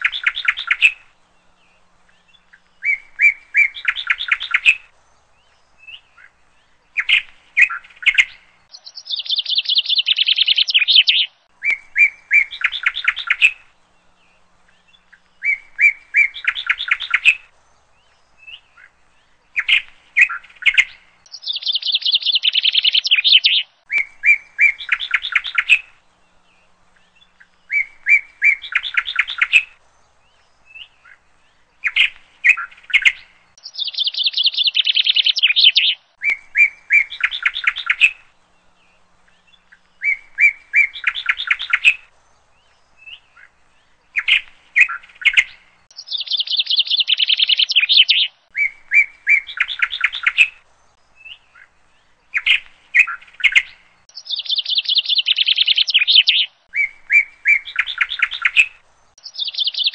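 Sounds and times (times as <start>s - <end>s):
songbird singing trills: 0.0s - 59.9s.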